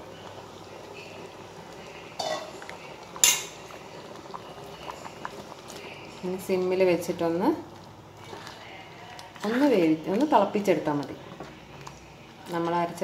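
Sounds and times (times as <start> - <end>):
curry bubbling in a pot: 0.0 - 13.0
utensil clinking against a pot: 2.2 - 3.7.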